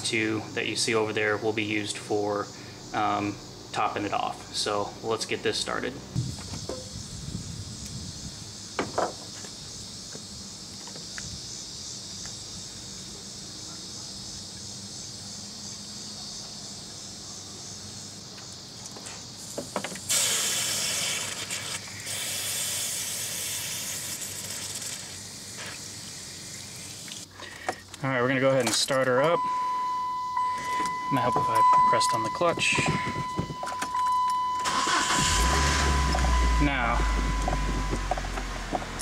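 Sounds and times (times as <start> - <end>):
water rushing from a hose: 19.5 - 27.3
steady high buzz: 28.0 - 39.0.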